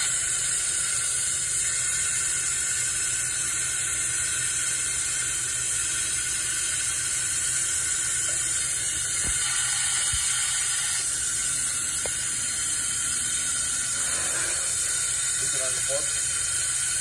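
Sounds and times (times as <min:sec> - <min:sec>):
compressed air hissing: 0:00.0 - 0:17.0.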